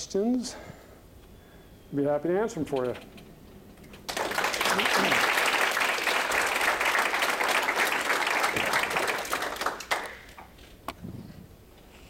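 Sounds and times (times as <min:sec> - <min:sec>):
audience applauding: 0:03.9 - 0:10.5.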